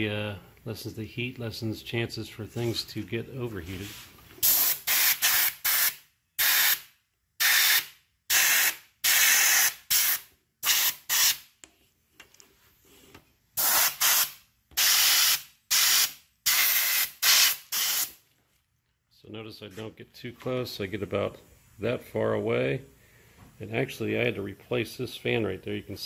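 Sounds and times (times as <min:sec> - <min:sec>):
compressed air bursts: 0:03.8 - 0:11.5, 0:13.6 - 0:18.2.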